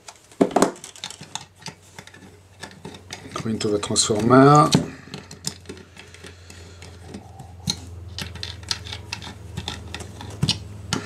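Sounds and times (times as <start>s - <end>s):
hex key clicking and scraping: 0.8s - 11.0s.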